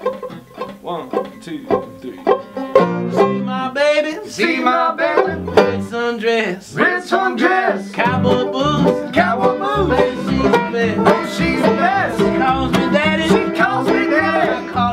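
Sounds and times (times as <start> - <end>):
up-tempo banjo and guitar music: 0.0 - 14.9.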